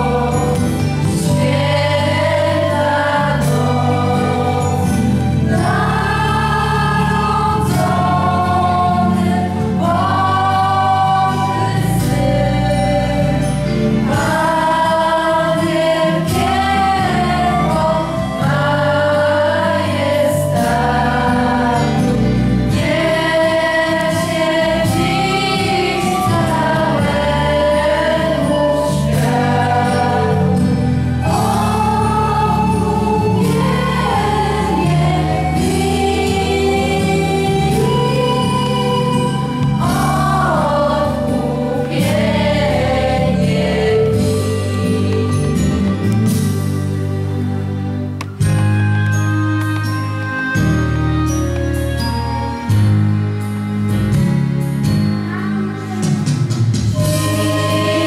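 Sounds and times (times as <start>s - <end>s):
children singing a carol: 0.0s - 46.8s, 55.3s - 58.0s
held accompaniment chords: 0.0s - 58.0s.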